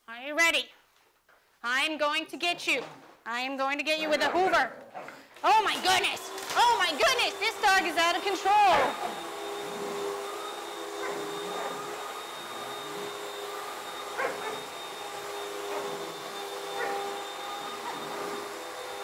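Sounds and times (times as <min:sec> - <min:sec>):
vacuum cleaner whining: 0:05.4 - 0:19.0
dog barking: 0:11.0 - 0:11.8, 0:14.2 - 0:14.7, 0:16.8 - 0:17.1, 0:17.8 - 0:18.1.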